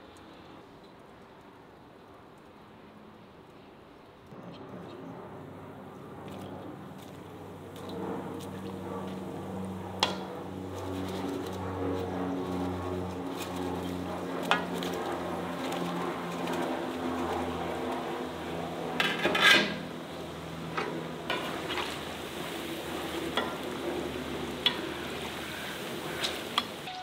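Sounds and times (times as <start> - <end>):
low hum: 4.2 - 27.0
food sizzling in hot oil: 21.3 - 27.0.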